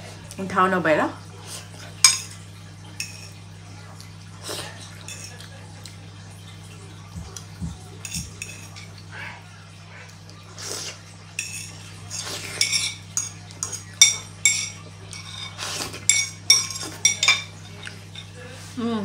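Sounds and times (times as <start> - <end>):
fork scraping ceramic plate: 11.4 - 17.5.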